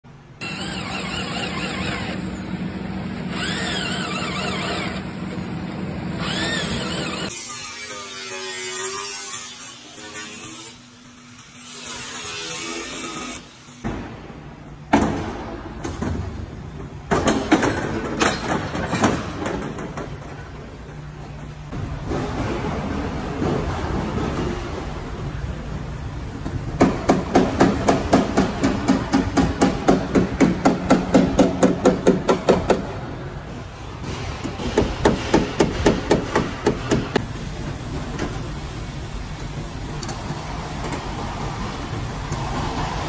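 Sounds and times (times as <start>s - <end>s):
drill boring into sheet metal: 0.4s - 2.2s, 3.3s - 5.1s, 6.2s - 7.4s
electric power tool whirring: 0.4s - 2.3s, 3.3s - 5.1s, 6.2s - 7.4s
drill squealing: 0.4s - 2.4s, 3.3s - 5.2s, 6.2s - 7.4s.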